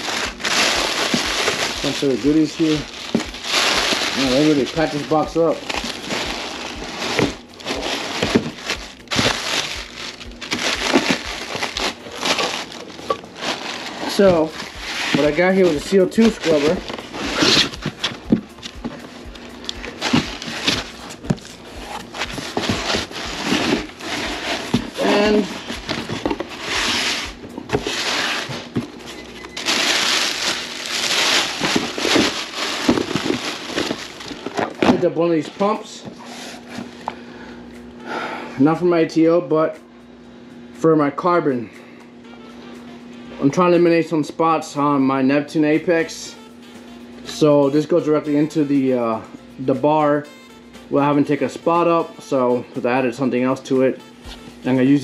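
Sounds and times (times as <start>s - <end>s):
packing material crinkling: 0.0s - 35.6s.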